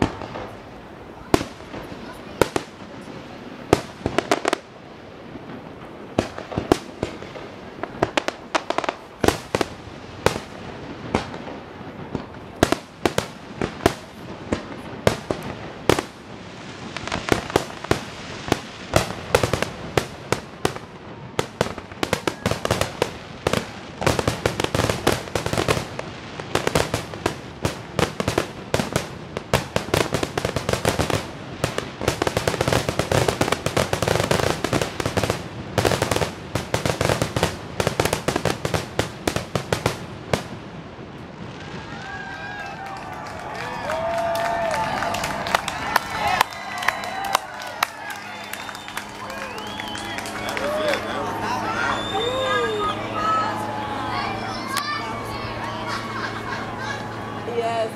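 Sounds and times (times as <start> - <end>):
firework shells bursting: 46.4 - 51.2.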